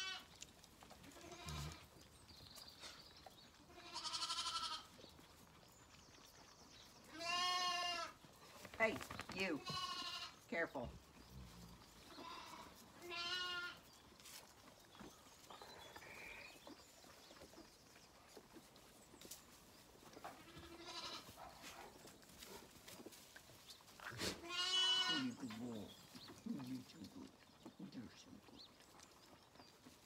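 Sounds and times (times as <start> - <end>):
lambs bleating: 0.0 - 0.3, 1.0 - 1.9, 3.6 - 4.9, 7.1 - 8.2, 9.6 - 10.4, 12.1 - 13.8, 20.4 - 21.3, 24.2 - 25.4.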